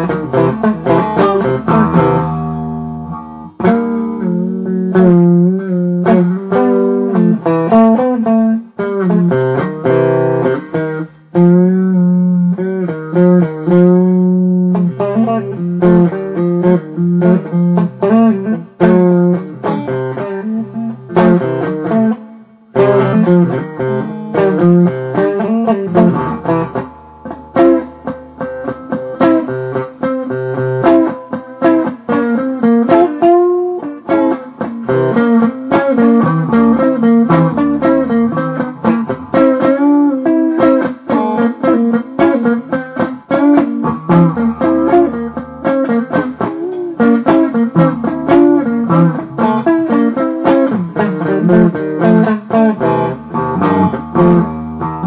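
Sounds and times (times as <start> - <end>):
blues guitar: 0.0 - 55.0.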